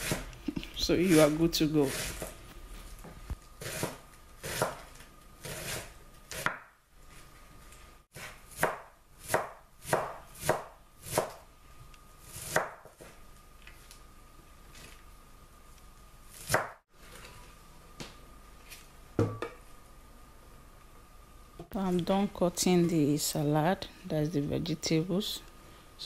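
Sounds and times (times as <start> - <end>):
knife chopping lettuce on board: 3.6 - 6.7, 8.1 - 11.4, 12.3 - 13.2, 16.4 - 16.8.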